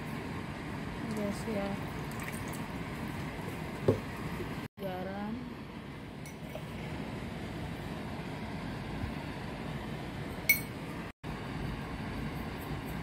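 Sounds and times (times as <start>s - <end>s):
low kitchen noise: 0.0s - 13.0s
sauce simmering: 0.1s - 4.7s
glass container clinking: 10.5s - 10.8s.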